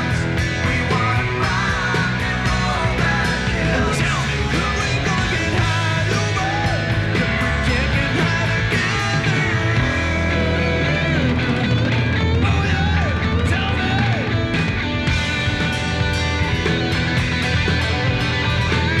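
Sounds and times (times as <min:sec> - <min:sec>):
steady drum beat: 0:00.0 - 0:13.0, 0:13.6 - 0:19.0
man singing: 0:00.0 - 0:14.4
electric guitars: 0:00.0 - 0:19.0.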